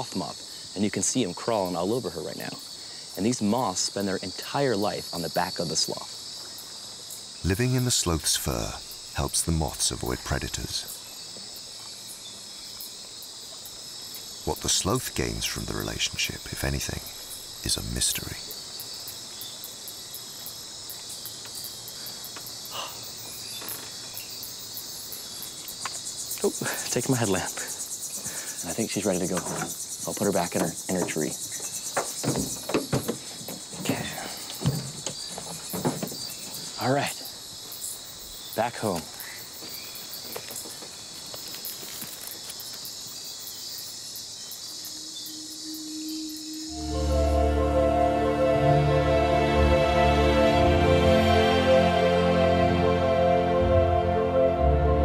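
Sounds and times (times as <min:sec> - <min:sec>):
rapid ticking insect calls: 0:00.0 - 0:49.4
crickets trilling: 0:00.0 - 0:53.1
high-pitched insect shrill: 0:44.3 - 0:47.4.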